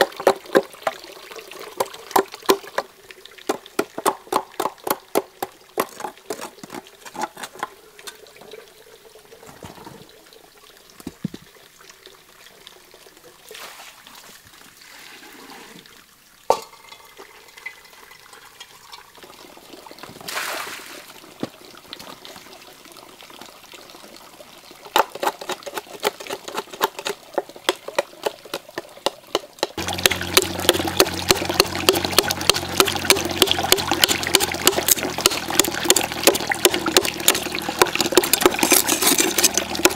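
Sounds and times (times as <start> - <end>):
water running from a pipe: 0.0 - 39.9
blade scraping charred wood: 5.8 - 7.7, 24.9 - 28.6, 29.8 - 39.9.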